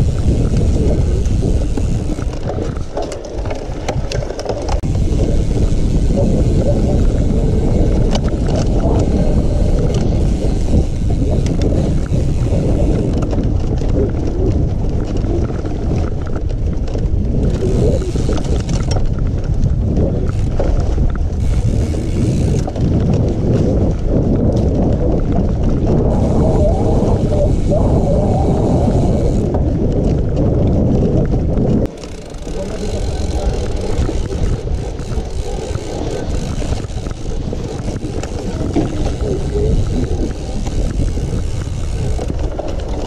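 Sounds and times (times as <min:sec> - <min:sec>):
bike knocks and rattles: 0:00.0 - 0:43.0
wind rumbling on microphone: 0:00.0 - 0:43.0.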